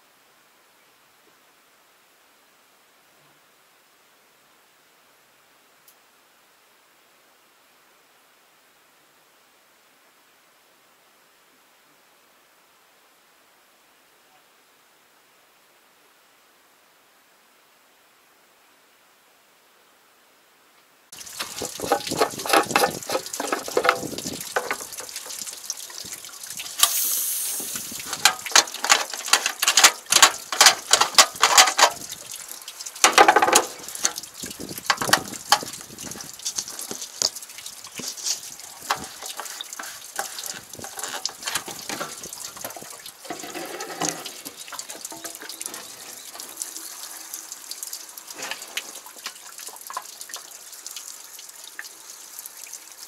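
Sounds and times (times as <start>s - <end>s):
hose and fittings clicking: 21.2s - 47.1s, 48.3s - 50.5s
liquid running through hose: 21.2s - 50.5s.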